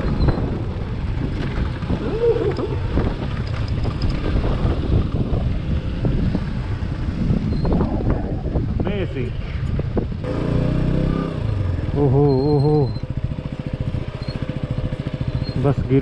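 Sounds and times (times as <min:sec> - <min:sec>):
motorcycle engine running: 0:00.0 - 0:16.0
wind noise on microphone: 0:00.0 - 0:16.0.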